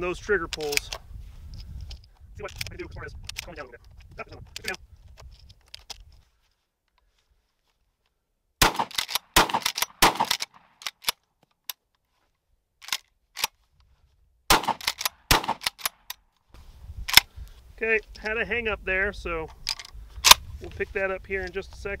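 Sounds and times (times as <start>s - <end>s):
shotgun shots: 8.6s - 10.8s, 14.5s - 15.9s
shotgun pump clacks: 8.7s - 11.2s, 14.5s - 16.2s.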